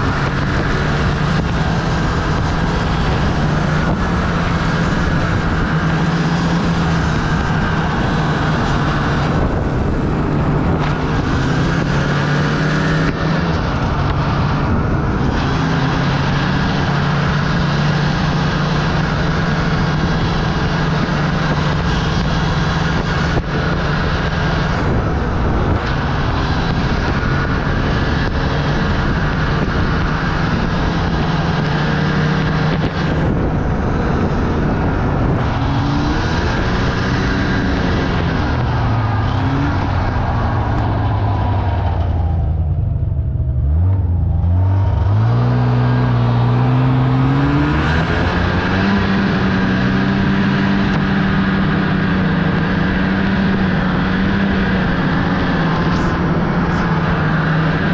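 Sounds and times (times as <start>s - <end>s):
wind and snow rush: 0.0s - 42.6s
snowmobile engine running: 0.0s - 57.9s.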